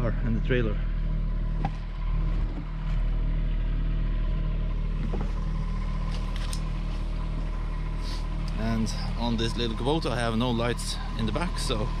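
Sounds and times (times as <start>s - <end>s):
mini excavator engine running: 0.0s - 12.0s.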